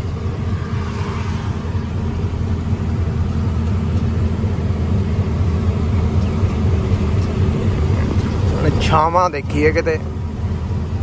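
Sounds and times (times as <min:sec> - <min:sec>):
road noise: 0:00.0 - 0:11.0
truck engine drone: 0:00.0 - 0:11.0.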